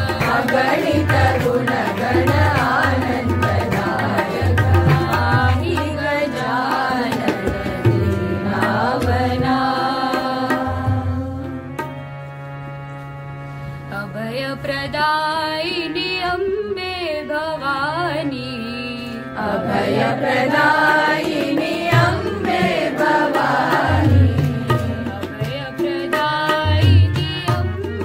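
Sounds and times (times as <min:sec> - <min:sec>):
hand drum beats: 0:00.0 - 0:09.8
devotional singing: 0:00.0 - 0:11.7, 0:18.7 - 0:28.0.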